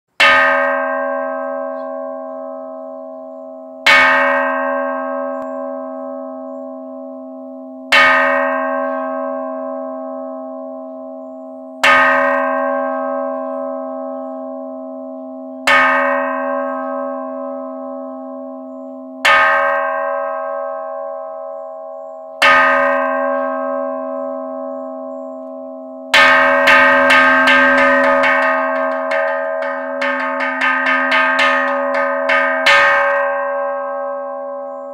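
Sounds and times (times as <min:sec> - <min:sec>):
temple bell strikes ringing: 0:00.2 - 0:34.9
rapid roll of bell strokes: 0:26.6 - 0:32.9.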